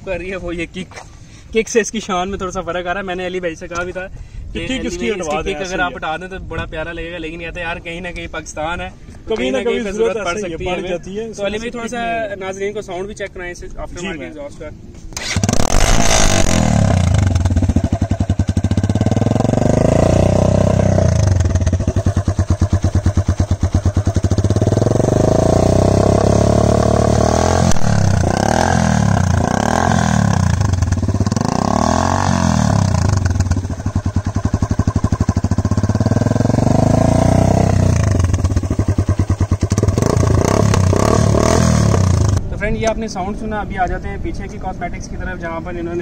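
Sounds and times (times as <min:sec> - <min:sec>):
quick throttle blips: 0:15.2 - 0:23.8
motorcycle engine revving: 0:15.2 - 0:42.4.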